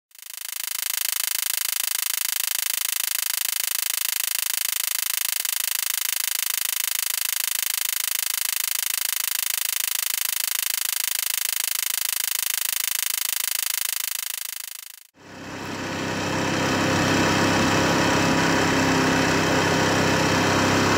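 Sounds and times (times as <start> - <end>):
rapid high-pitched ticking: 0.1 - 15.1.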